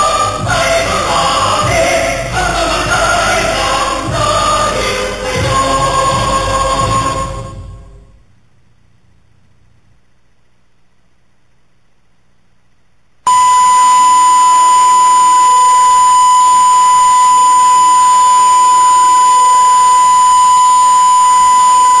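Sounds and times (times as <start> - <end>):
steady test tone beep: 13.3 - 22.0.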